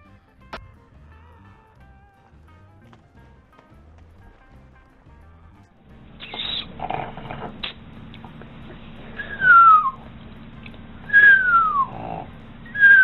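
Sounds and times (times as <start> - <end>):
person whistling descending note: 6.2 - 6.7, 9.1 - 10.0, 11.1 - 12.0, 12.7 - 13.0.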